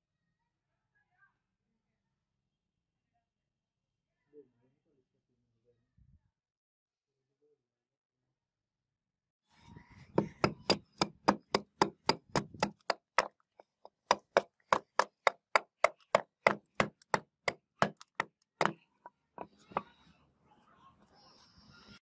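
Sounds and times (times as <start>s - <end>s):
hatchet chopping wood: 10.1s - 19.5s.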